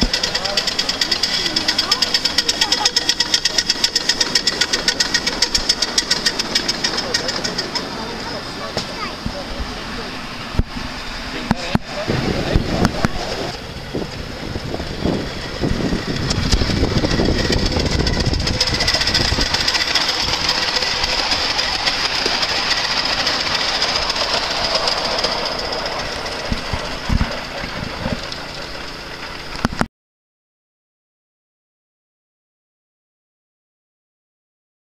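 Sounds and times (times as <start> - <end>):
small train clattering on track: 0.0 - 9.9, 11.4 - 29.9
steam hiss: 13.2 - 29.5.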